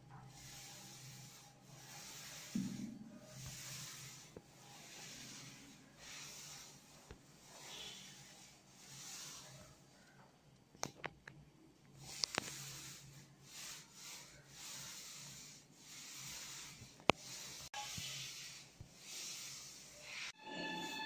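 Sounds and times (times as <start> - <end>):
paint roller swishing on wall: 0.0 - 10.3, 12.0 - 21.0
music: 20.4 - 21.0.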